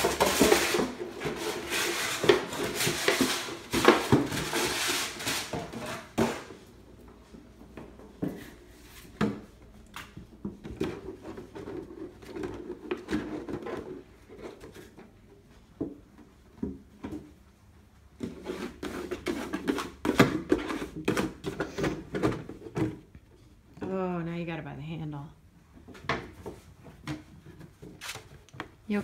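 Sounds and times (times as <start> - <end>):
plastic jug knocking and scraping: 0.0 - 6.6, 7.6 - 17.4, 18.1 - 23.2.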